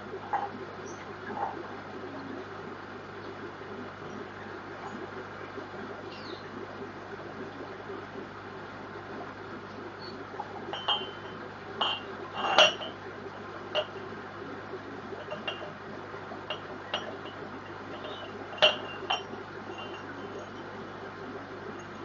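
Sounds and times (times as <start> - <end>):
steady low hum: 0.0 - 22.0
clinks against aquarium glass: 10.4 - 14.2, 15.2 - 21.1.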